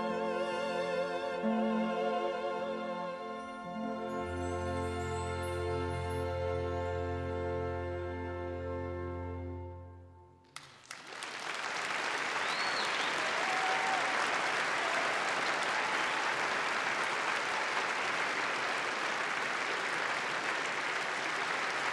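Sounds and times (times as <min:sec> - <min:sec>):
audience applause: 0:10.6 - 0:21.9.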